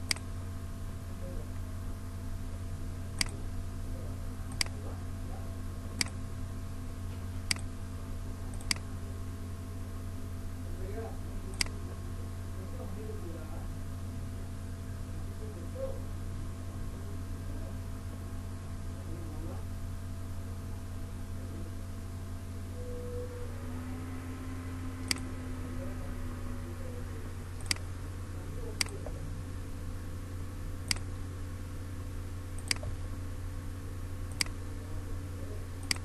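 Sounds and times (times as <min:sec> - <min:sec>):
computer mouse clicking: 0:00.0 - 0:00.3, 0:03.2 - 0:03.4, 0:04.5 - 0:04.8, 0:06.0 - 0:06.2, 0:07.5 - 0:07.7, 0:08.5 - 0:08.9, 0:11.5 - 0:11.8, 0:25.0 - 0:25.3, 0:27.6 - 0:27.9, 0:28.8 - 0:29.1, 0:30.8 - 0:31.1, 0:32.6 - 0:33.0, 0:34.3 - 0:34.6, 0:35.8 - 0:36.0
steady low hum: 0:00.0 - 0:36.0.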